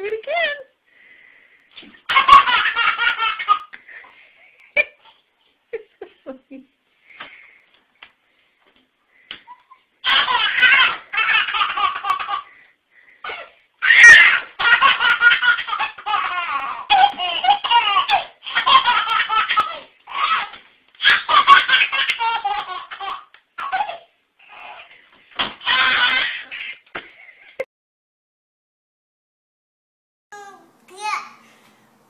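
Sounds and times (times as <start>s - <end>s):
baby belly-laughing: 1.8s - 3.8s, 9.4s - 12.6s, 13.2s - 25.0s, 25.6s - 27.2s.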